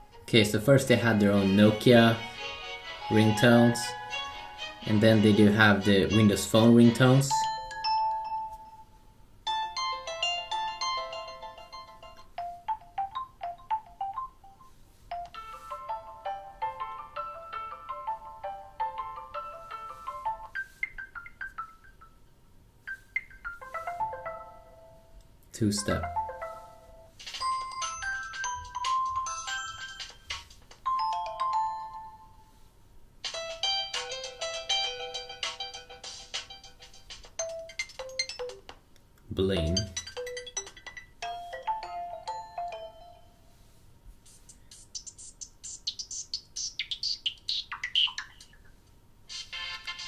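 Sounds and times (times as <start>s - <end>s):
phone ringtone chiming melody: 1.4s - 5.4s, 6.9s - 25.1s, 25.9s - 32.6s, 33.5s - 38.7s, 39.5s - 43.6s.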